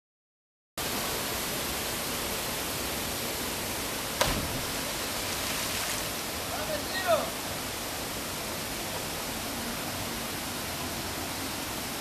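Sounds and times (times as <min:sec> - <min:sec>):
river water rushing: 0:00.8 - 0:12.0
body splashing into water: 0:04.2 - 0:05.9.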